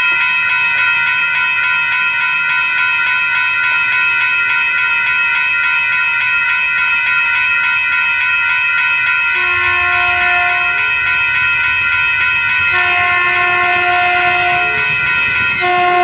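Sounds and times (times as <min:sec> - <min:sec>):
railroad crossing bell ringing: 0:00.0 - 0:16.0
train horn: 0:09.3 - 0:11.1, 0:12.6 - 0:16.0.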